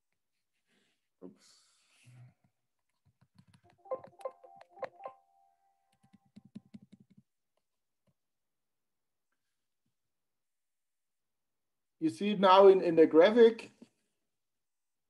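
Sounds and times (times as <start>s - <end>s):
keyboard and mouse clicking: 3.2s - 5.1s, 5.9s - 7.2s.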